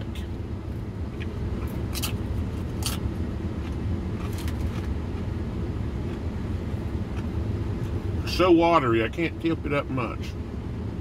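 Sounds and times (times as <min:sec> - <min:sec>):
car engine idling: 0:00.0 - 0:11.0
chip crunching being chewed: 0:01.2 - 0:05.0.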